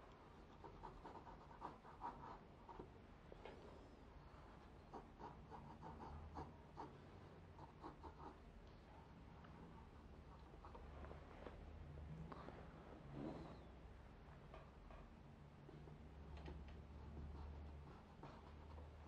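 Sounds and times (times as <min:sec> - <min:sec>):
pencil scratching on paper: 0:00.4 - 0:02.9, 0:04.4 - 0:08.4, 0:17.2 - 0:19.0.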